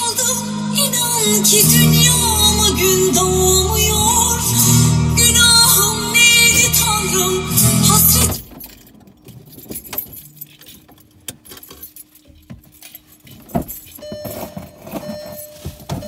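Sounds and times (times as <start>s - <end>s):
background music: 0.0s - 8.4s
higher steady tone: 0.0s - 8.4s
small clicks and rattles: 8.4s - 15.4s.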